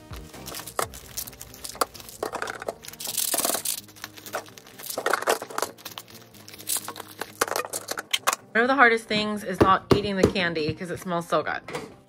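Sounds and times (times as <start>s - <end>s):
plastic wrap crinkling: 0.0s - 8.4s
plastic tubs clacking into jars: 0.4s - 8.5s.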